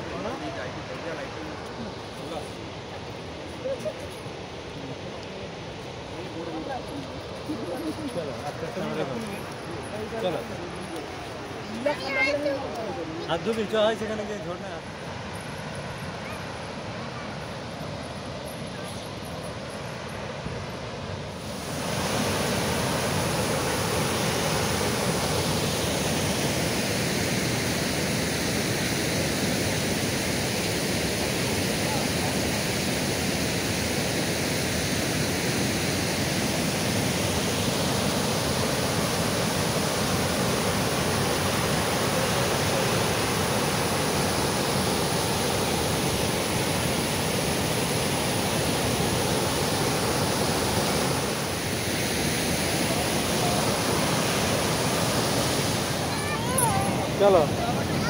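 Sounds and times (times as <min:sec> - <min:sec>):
waterfall rushing: 0:18.4 - 0:58.0.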